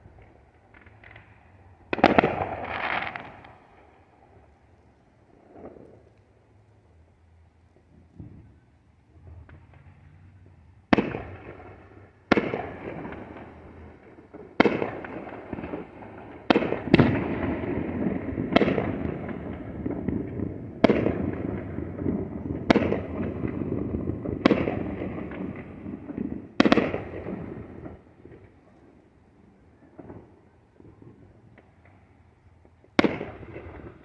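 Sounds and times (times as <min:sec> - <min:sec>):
firework shells bursting: 0:00.1 - 0:03.7.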